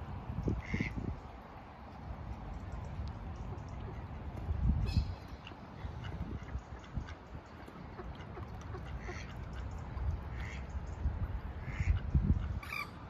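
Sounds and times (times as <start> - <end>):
waterfowl calling: 4.8 - 9.7, 10.3 - 10.7, 11.6 - 13.0.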